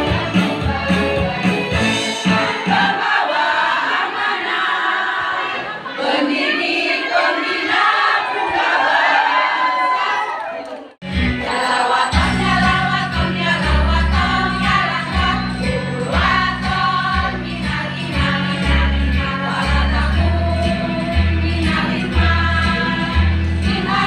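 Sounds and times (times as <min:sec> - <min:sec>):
women singing in chorus: 0:02.4 - 0:10.1, 0:11.4 - 0:24.0
steady bass line: 0:12.2 - 0:24.0.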